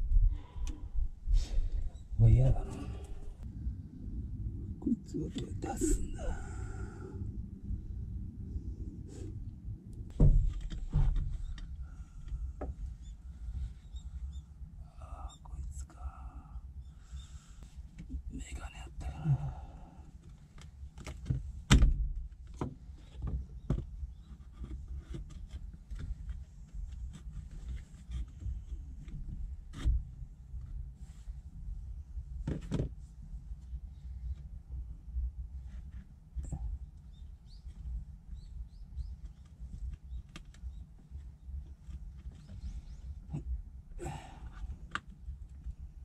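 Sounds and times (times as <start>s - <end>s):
low rumble: 0.0s - 13.7s
bird chirps: 37.1s - 37.7s.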